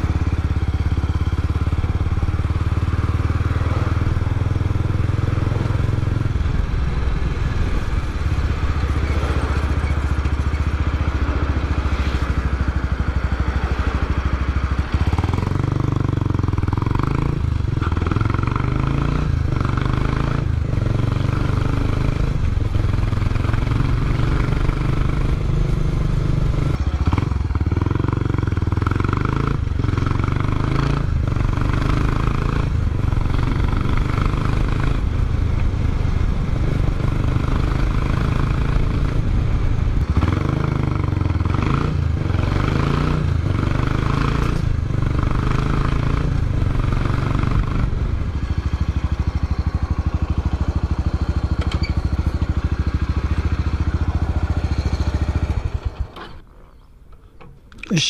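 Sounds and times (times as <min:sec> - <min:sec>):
motorcycle engine running: 0:00.0 - 0:56.8.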